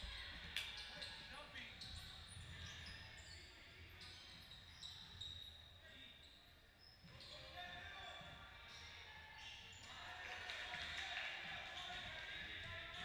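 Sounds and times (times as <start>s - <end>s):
sneakers squeaking on court: 0.6s - 9.9s.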